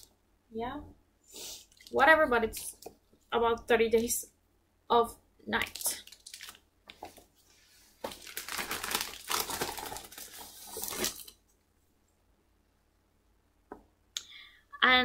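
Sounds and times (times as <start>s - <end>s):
paper crinkling and rustling: 5.8s - 7.3s, 8.0s - 11.4s.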